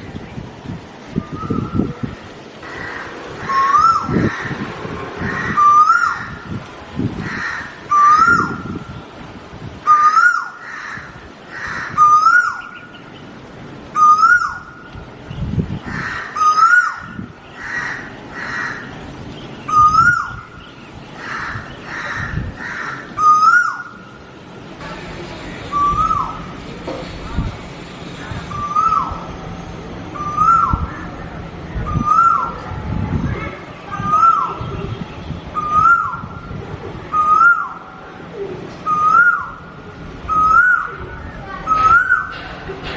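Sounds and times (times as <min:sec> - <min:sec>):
bird whistled calls: 0:01.2 - 0:02.0, 0:03.5 - 0:04.2, 0:07.9 - 0:08.6, 0:14.0 - 0:14.8, 0:19.7 - 0:20.6, 0:23.2 - 0:24.0, 0:25.7 - 0:26.5, 0:28.5 - 0:29.2, 0:30.2 - 0:30.8, 0:31.9 - 0:32.6, 0:34.0 - 0:34.7, 0:35.5 - 0:36.3, 0:37.1 - 0:37.8, 0:38.8 - 0:39.6, 0:40.3 - 0:41.0, 0:41.6 - 0:42.4.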